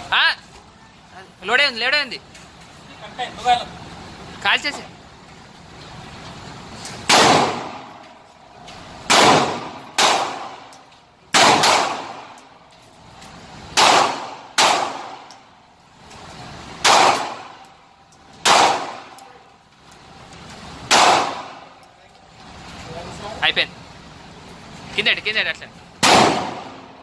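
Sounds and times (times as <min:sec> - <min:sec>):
pistol shots ringing indoors: 0:07.1 - 0:08.0, 0:09.1 - 0:12.4, 0:13.8 - 0:15.4, 0:16.8 - 0:17.6, 0:18.4 - 0:19.3, 0:20.9 - 0:21.8, 0:26.0 - 0:27.0.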